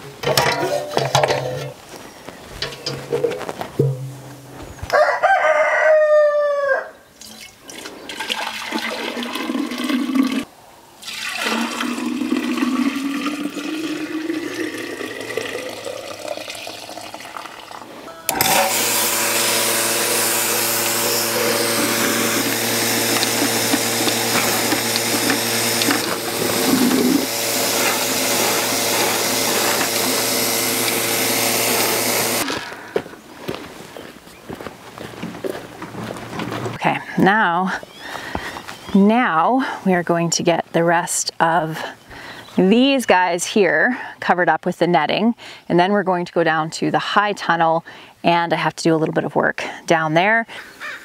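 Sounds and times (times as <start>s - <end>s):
rooster crowing: 4.9s - 7.0s
vacuum pump humming and hissing: 18.3s - 33.0s.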